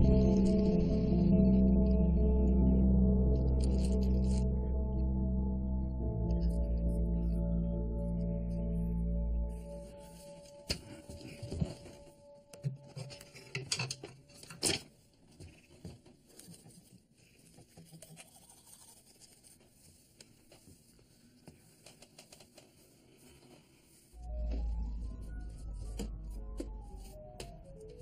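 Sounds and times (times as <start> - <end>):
music: 0.0 - 14.3, 24.2 - 28.0.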